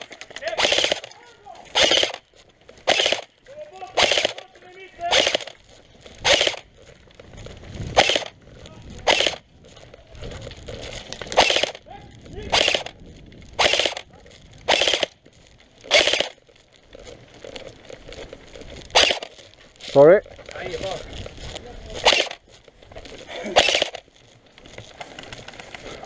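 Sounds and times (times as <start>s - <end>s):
airsoft gun firing bursts: 0.0s - 2.2s, 2.8s - 5.6s, 6.2s - 6.7s, 7.9s - 8.4s, 9.0s - 9.4s, 11.3s - 13.0s, 13.6s - 15.2s, 15.9s - 16.4s, 18.9s - 19.4s, 22.0s - 22.4s, 23.4s - 24.0s.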